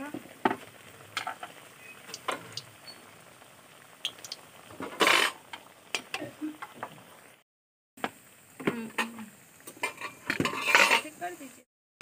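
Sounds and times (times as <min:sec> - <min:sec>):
dough sizzling in oil: 0:00.0 - 0:07.4, 0:08.0 - 0:11.7
metal spoon scraping pan: 0:09.8 - 0:11.2.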